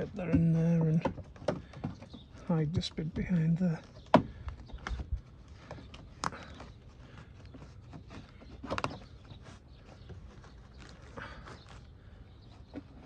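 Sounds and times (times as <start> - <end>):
plastic conduit knocks and scuffs: 0.0 - 2.8.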